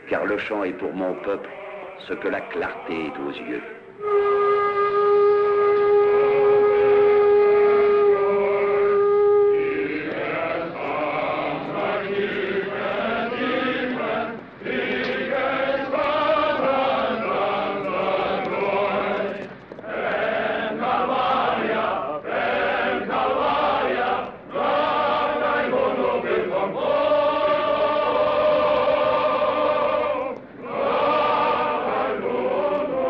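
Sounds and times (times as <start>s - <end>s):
men's choir singing: 0.0s - 4.9s, 5.9s - 33.0s
steady whistle tone: 4.0s - 10.6s.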